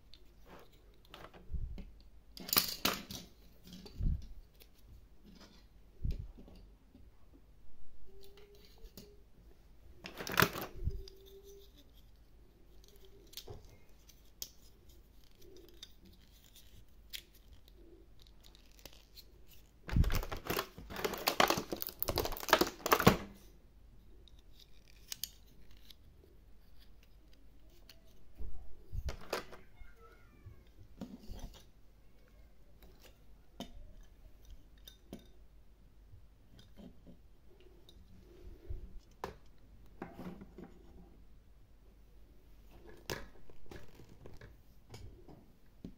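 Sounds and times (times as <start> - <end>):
plastic tray crackling and rustling: 10.0 - 11.7, 17.4 - 23.4, 42.7 - 44.6
plastic toys clicking and tapping: 10.1 - 23.3.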